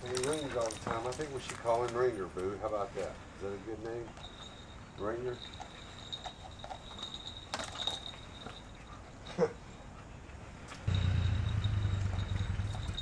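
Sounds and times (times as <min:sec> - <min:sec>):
small bell jingling: 0:00.0 - 0:02.3, 0:03.4 - 0:09.6, 0:10.9 - 0:13.0
low engine-like hum: 0:10.9 - 0:13.0.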